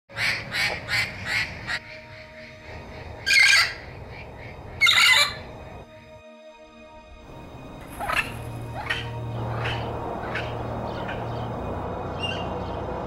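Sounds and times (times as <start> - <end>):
parrot squawking: 3.2 - 3.9, 4.8 - 5.5, 7.8 - 11.4.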